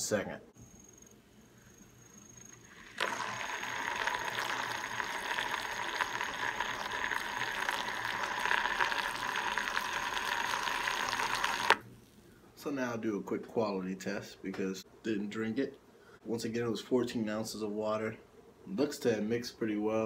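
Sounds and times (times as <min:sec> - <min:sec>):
small mixer motor whirring: 0:02.6 - 0:11.8.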